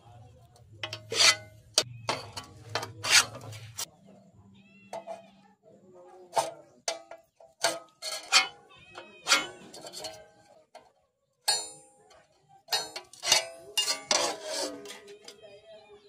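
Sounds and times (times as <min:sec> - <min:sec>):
scriber scraping steel: 0:00.5 - 0:03.9, 0:06.3 - 0:10.9, 0:11.5 - 0:15.6
metallic clicks on steel plate: 0:09.2 - 0:15.0.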